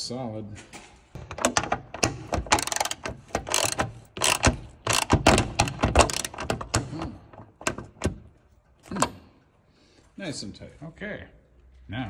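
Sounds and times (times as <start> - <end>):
socket wrench ratcheting: 1.2 - 8.2.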